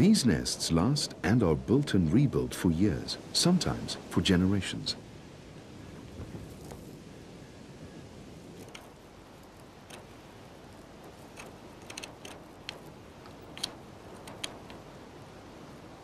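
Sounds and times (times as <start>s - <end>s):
dry sticks clicking and snapping: 8.6s - 15.0s.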